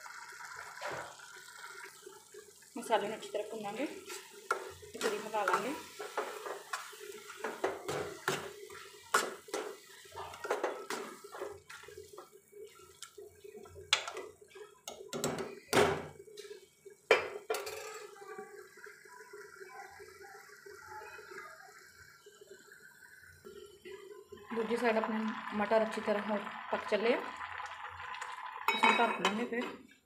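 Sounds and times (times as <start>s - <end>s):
spoon scraping metal pan: 4.0s - 11.8s.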